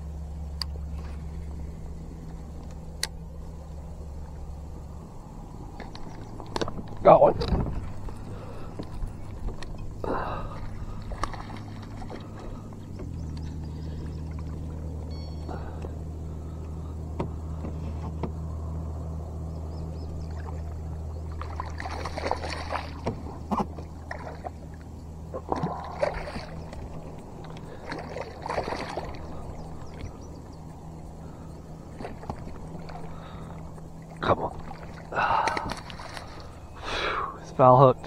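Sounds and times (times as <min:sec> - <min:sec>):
steady low hum: 0:00.0 - 0:38.0
fish splashing and thrashing: 0:05.6 - 0:18.6, 0:20.2 - 0:36.9.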